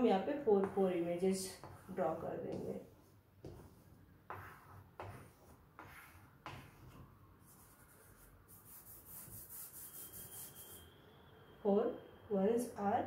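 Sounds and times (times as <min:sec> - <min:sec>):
hand rubbing chalk off board: 0:00.6 - 0:10.8
chalk scraping on blackboard: 0:00.6 - 0:10.9.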